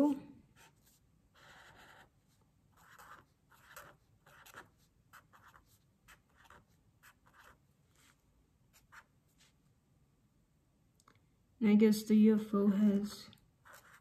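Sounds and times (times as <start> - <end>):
marker pen scratching on paper: 0.5 - 9.6, 13.6 - 14.0.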